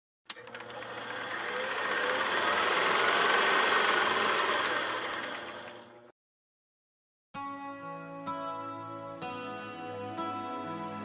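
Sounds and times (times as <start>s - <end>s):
film projector clatter: 0.3s - 6.0s.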